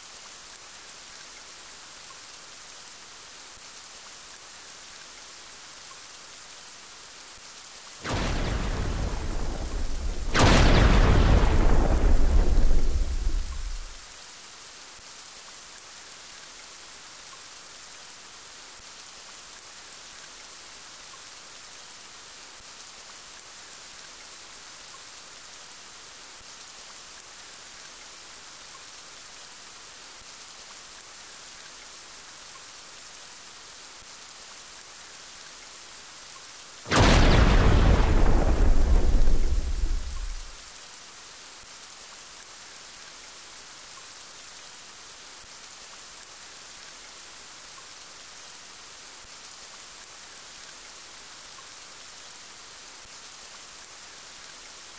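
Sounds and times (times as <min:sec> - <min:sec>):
steady rain hissing: 0:00.0 - 0:54.9
thunder rumbling: 0:08.1 - 0:14.0, 0:36.9 - 0:40.6.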